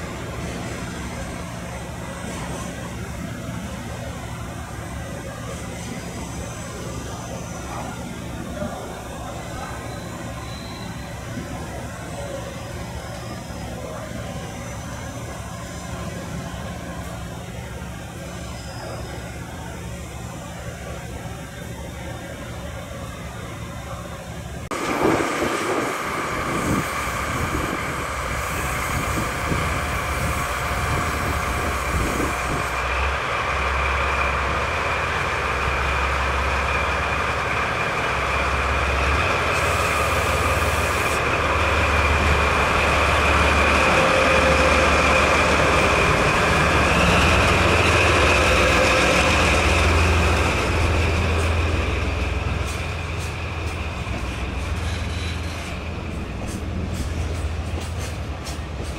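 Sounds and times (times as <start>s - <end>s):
freight train rumbling past: 0.0s - 58.9s
wheels on rails: 24.7s - 58.9s.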